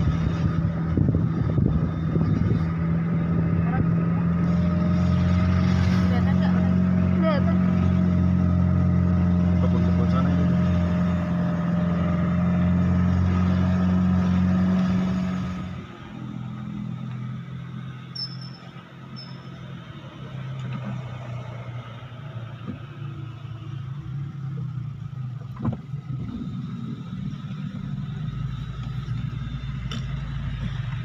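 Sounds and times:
car engine drone: 0:00.0 - 0:31.0
road noise: 0:00.0 - 0:31.0
short high chirps: 0:18.1 - 0:19.6.

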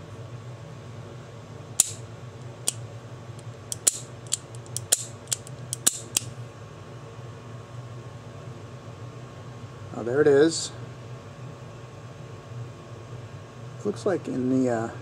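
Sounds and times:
revolver action metal clicks: 0:01.8 - 0:02.0, 0:03.4 - 0:06.3.

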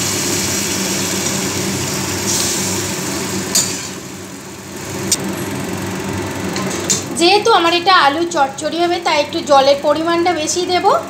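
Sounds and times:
water sizzling in a hot pan: 0:00.0 - 0:04.8
low machine hum: 0:00.0 - 0:11.0.

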